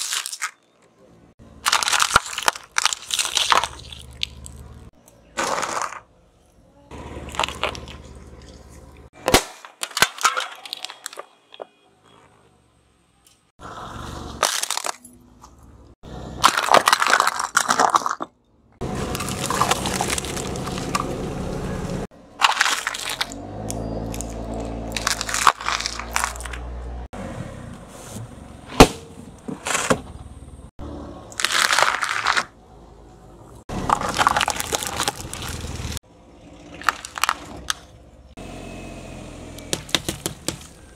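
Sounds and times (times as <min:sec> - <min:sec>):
car low rumble: 0:00.8 - 0:05.4, 0:06.0 - 0:09.2, 0:18.4 - 0:31.5, 0:32.4 - 0:40.9
tyre crushing plastic: 0:01.6 - 0:04.6, 0:09.2 - 0:11.6, 0:16.4 - 0:21.1, 0:22.4 - 0:23.4, 0:24.9 - 0:26.7, 0:31.4 - 0:32.5, 0:33.8 - 0:35.8, 0:36.8 - 0:37.8.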